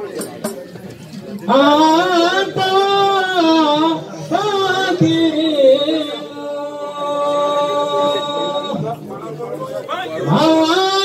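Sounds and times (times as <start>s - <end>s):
high voice chanting unaccompanied: 1.5s - 9.0s, 10.1s - 11.0s.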